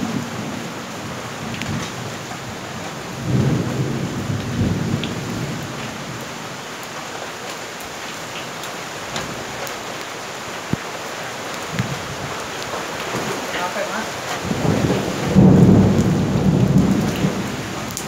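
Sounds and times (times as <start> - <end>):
thunder rumbling: 0.0 - 6.3, 11.7 - 18.0
rain hissing: 0.0 - 18.0.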